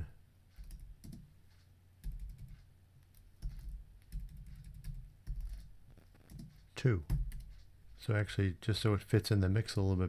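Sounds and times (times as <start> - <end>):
typing on computer keyboard: 0.6 - 1.3, 2.0 - 7.6.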